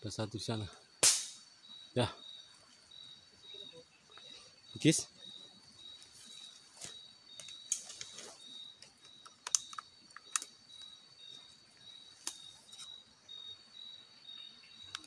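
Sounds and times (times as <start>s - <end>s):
insect chirping: 0.0s - 15.0s
sharp clicks: 9.2s - 10.5s.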